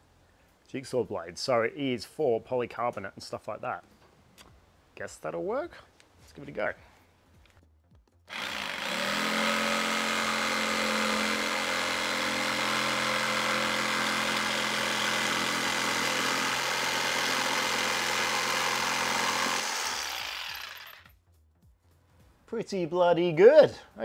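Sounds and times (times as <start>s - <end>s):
jigsaw motor running: 8.3s - 21.1s.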